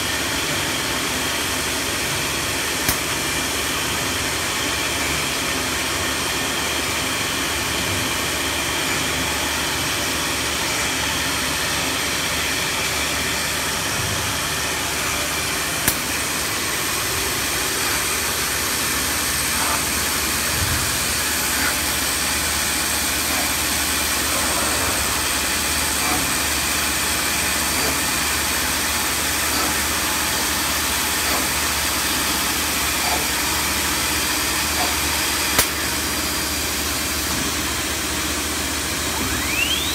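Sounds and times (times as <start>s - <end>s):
router spindle whining: 10.8s - 37.6s, 38.8s - 39.9s
sharp click: 15.8s - 16.1s.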